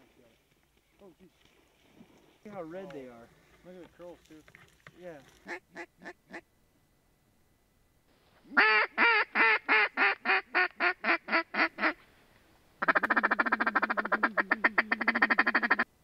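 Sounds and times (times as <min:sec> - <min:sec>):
duck call quacks: 0:05.4 - 0:06.4, 0:08.5 - 0:12.0, 0:12.8 - 0:15.9
duck call rattling chuckle: 0:12.8 - 0:15.8.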